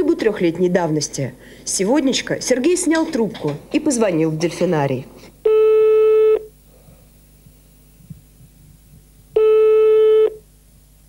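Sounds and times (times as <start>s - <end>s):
telephone ringback tone: 5.5s - 6.5s, 9.4s - 10.4s.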